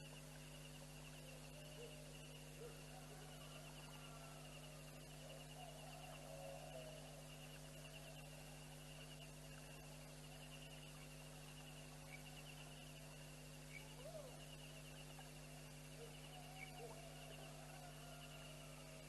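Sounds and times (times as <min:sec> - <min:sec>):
low electrical hum: 0:00.0 - 0:19.0
night insects trilling: 0:00.0 - 0:19.0
faint animal calls: 0:15.9 - 0:19.0.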